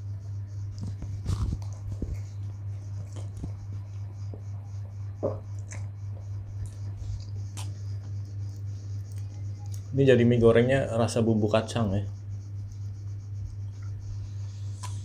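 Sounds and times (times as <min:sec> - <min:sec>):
low hum: 0:00.0 - 0:15.0
chewing noodles: 0:00.8 - 0:02.4.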